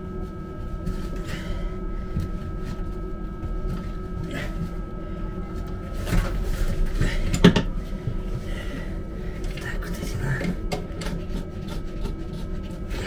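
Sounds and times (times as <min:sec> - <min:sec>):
low hum: 0:00.0 - 0:13.0
thin high whine: 0:00.0 - 0:13.0
knocks and clunks of parts: 0:06.0 - 0:07.8.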